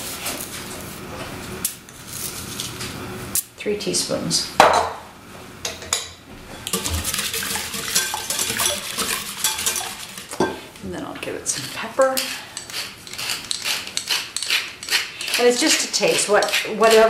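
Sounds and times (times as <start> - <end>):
whisk clinking in bowl: 6.6 - 10.6.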